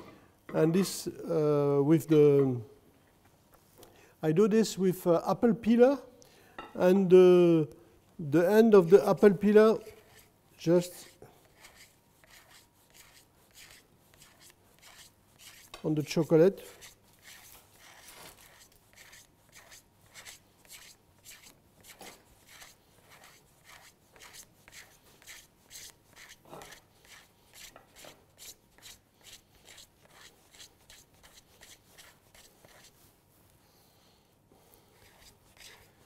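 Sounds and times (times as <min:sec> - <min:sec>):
peeler scraping chocolate: 0:08.9 - 0:33.0, 0:35.0 - 0:35.9.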